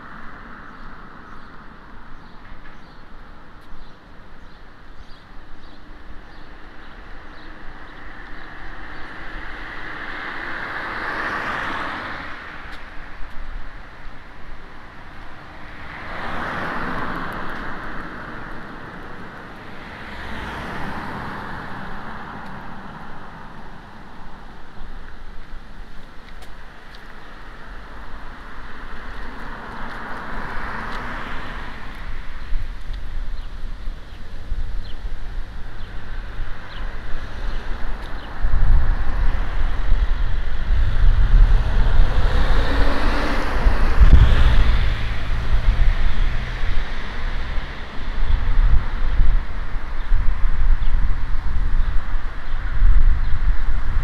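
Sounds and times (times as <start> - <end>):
cars passing: 0.0 - 54.0
steady low rumble: 31.9 - 54.0.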